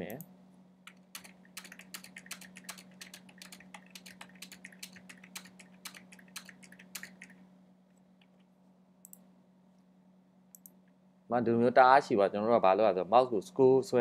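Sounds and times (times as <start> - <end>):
steady low hum: 0.0 - 14.0
computer keyboard typing: 0.9 - 7.4.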